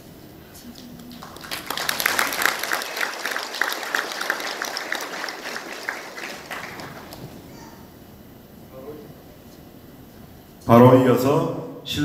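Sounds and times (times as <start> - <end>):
audience applauding: 0.7 - 7.7.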